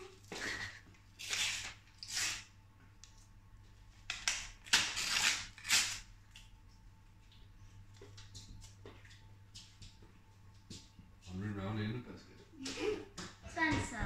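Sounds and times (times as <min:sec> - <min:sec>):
paper envelope tearing: 0:01.2 - 0:02.5, 0:04.3 - 0:06.1.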